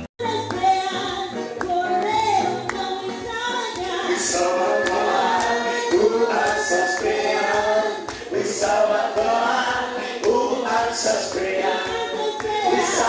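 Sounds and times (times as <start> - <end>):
choir singing: 3.6 - 13.0.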